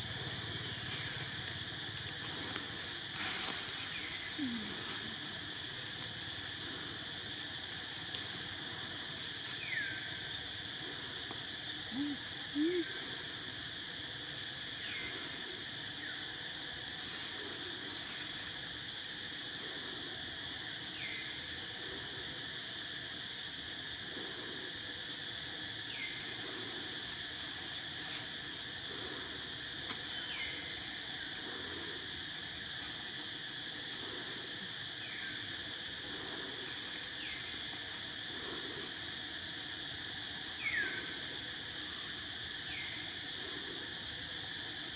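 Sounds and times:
high-pitched insect chorus: 0.0s - 44.9s.

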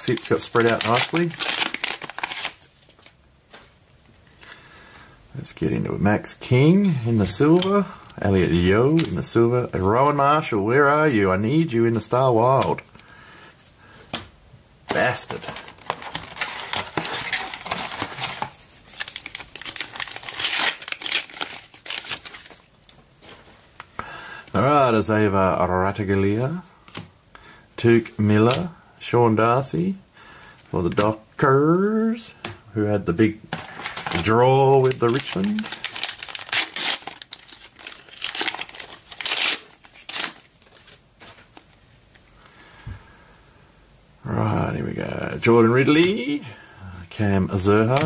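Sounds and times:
wrapper tearing and crinkling: 0.0s - 3.0s, 14.9s - 22.7s, 33.6s - 41.6s.

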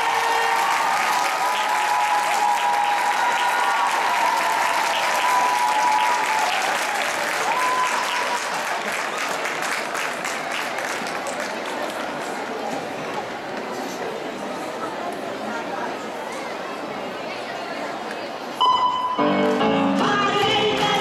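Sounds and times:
audience clapping: 0.0s - 12.7s.

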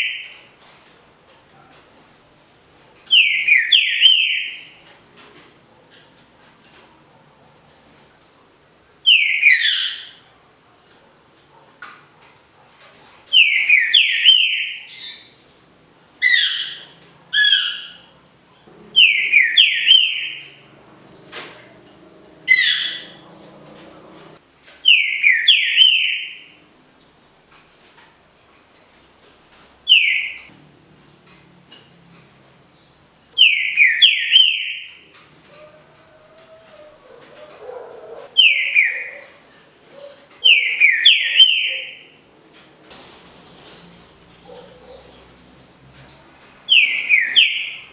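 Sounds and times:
bird singing clear notes: 16.2s - 26.6s, 37.4s - 39.4s, 46.7s - 47.9s.

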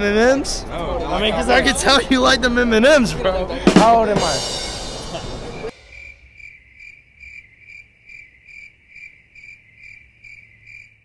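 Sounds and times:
insect chirping: 5.5s - 11.0s.

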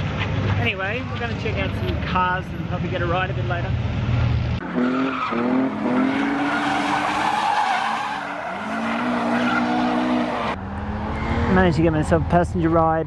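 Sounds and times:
tyres skidding and screeching: 0.0s - 13.0s
car engine revving hard: 4.6s - 11.7s.

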